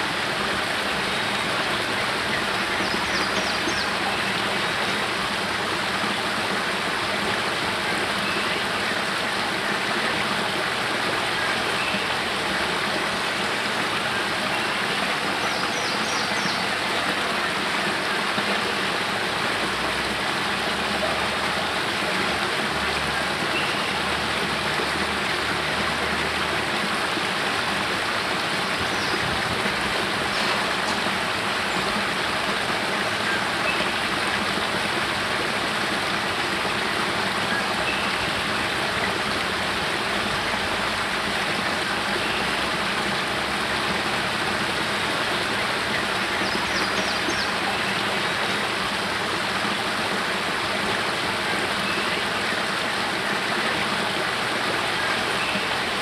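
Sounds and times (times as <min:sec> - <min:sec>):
water falling and splashing: 0:00.0 - 0:56.0.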